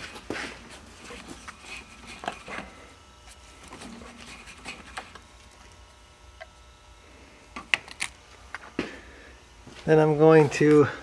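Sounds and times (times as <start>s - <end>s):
radiator cap clicking and scraping: 0.9s - 6.6s.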